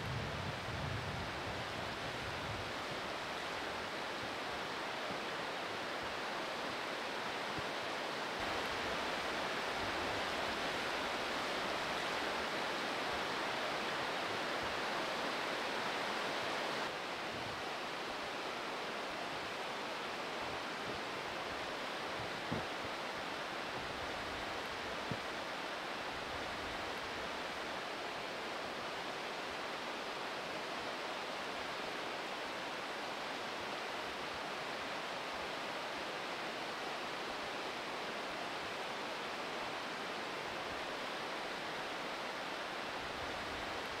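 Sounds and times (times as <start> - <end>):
river rapids rushing: 1.3 - 44.0.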